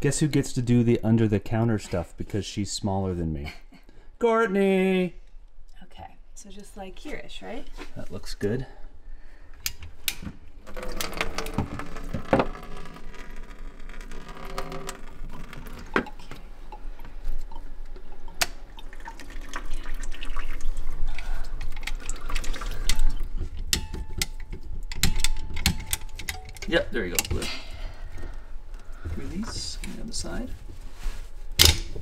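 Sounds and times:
water trickling into plastic bucket: 15.2 - 23.7.

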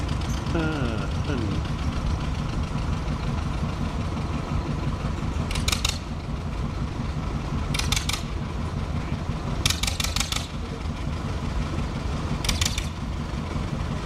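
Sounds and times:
diesel locomotive engine idling: 0.0 - 14.0
rapid sharp clicking: 5.4 - 6.2, 7.6 - 8.4, 9.6 - 10.7, 12.4 - 13.0.

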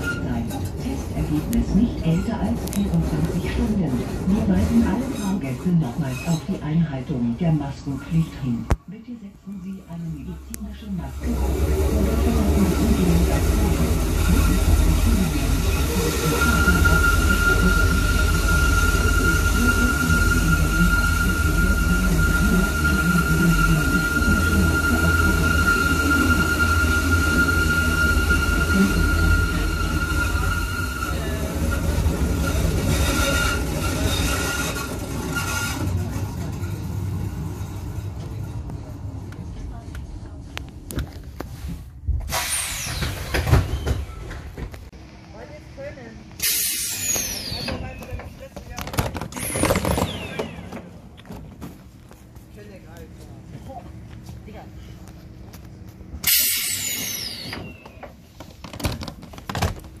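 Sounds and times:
train wheels squealing: 0.0 - 0.6, 14.2 - 36.0, 46.4 - 48.5, 56.2 - 58.2
train rumbling along track: 0.0 - 8.8, 9.7 - 60.0
train door hiss with whistle: 46.4 - 47.9, 56.2 - 58.0.

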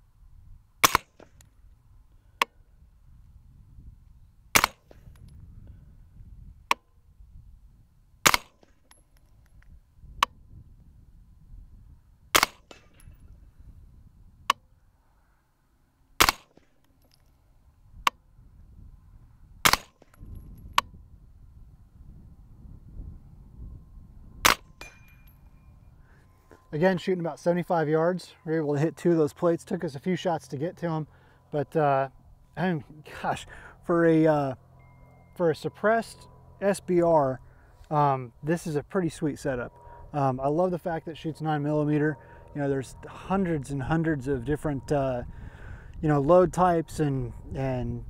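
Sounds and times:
suppressed rifle shots: 0.8 - 1.4, 4.5 - 5.1, 8.2 - 9.0, 12.3 - 13.0, 16.2 - 16.7, 19.6 - 20.2, 24.4 - 25.1.

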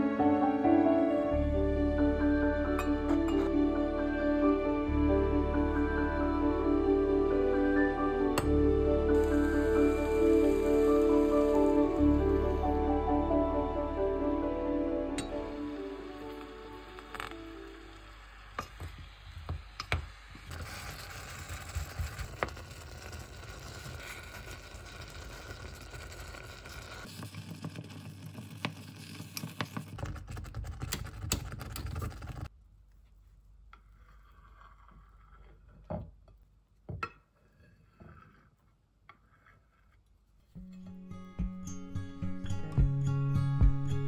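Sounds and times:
fruit simmering in saucepan: 15.3 - 30.3.

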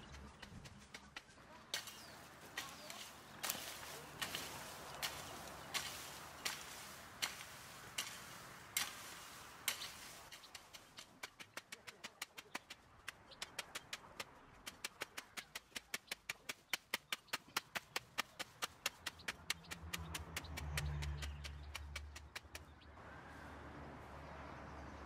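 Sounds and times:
shovel scraping crushed rock: 1.8 - 10.8.

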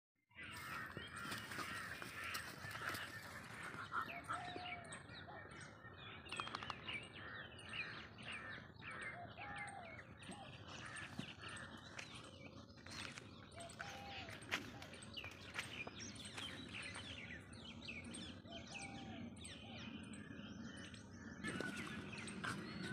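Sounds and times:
birds chirping: 0.3 - 22.9.

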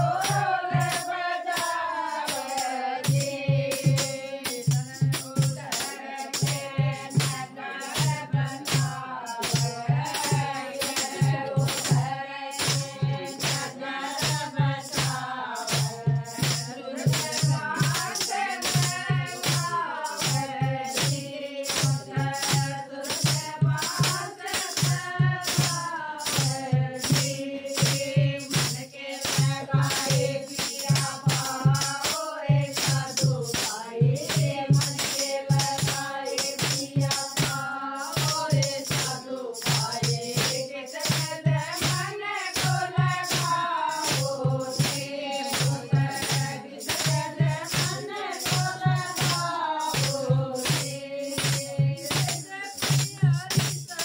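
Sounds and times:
drum beat: 0.0 - 54.0
women singing in unison: 0.0 - 54.0
hand clappers rattling: 27.9 - 54.0.

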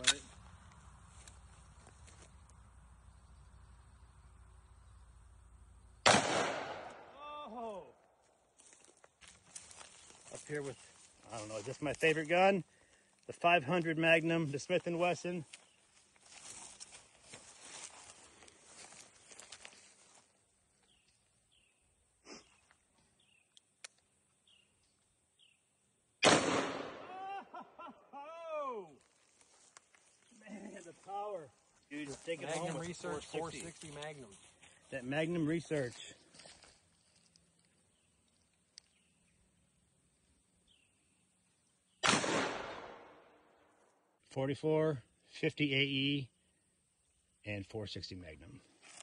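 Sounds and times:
revolver gunshot: 6.0 - 7.2, 26.2 - 27.1, 42.0 - 43.2.

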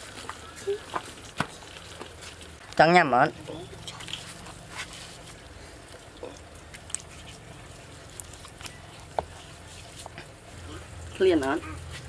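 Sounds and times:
low steady hum: 0.0 - 12.0
hands pulling apart meat: 3.8 - 10.4.

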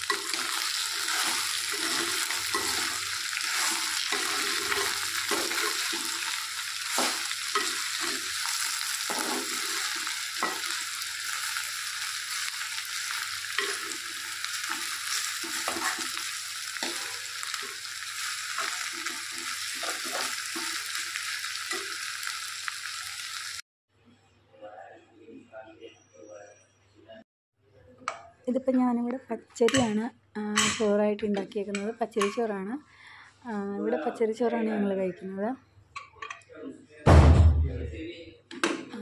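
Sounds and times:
vegetables sizzling in a pot: 0.0 - 23.6.

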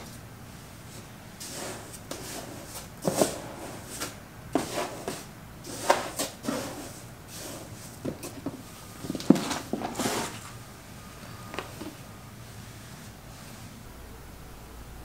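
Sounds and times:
scoop scraping cat litter: 0.9 - 10.6.

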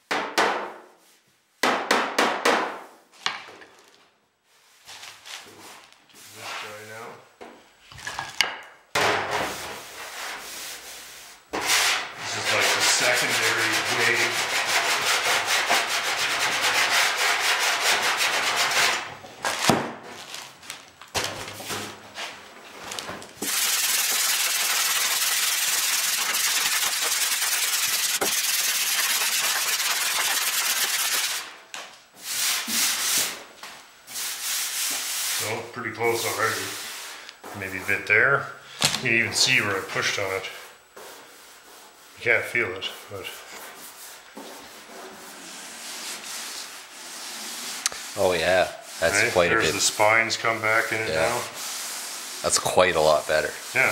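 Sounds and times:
sanding block rubbing metal: 11.6 - 19.0, 23.4 - 31.5, 45.2 - 53.9.

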